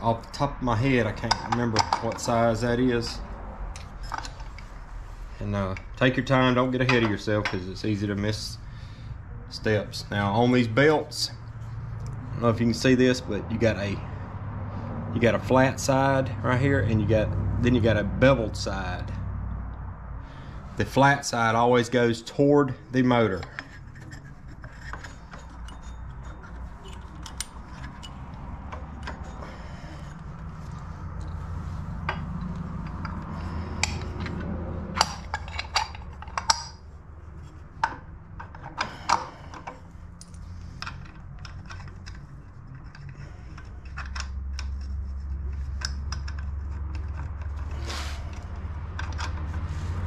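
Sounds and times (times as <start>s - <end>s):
low steady hum: 0.0s - 50.0s
metal parts clinking and knocking: 1.0s - 4.9s, 5.6s - 7.7s, 23.2s - 49.7s.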